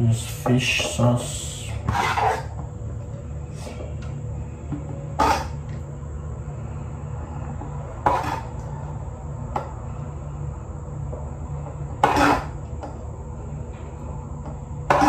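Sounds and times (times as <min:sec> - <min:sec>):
steady low hum: 0:00.0 - 0:15.0
metal spoon scraping metal pot: 0:01.8 - 0:02.6, 0:05.2 - 0:05.6, 0:08.0 - 0:08.6, 0:12.0 - 0:12.6.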